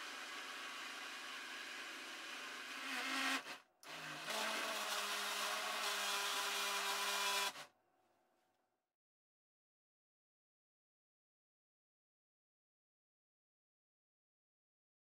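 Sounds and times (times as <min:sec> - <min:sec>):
blender motor running: 0:00.0 - 0:07.7.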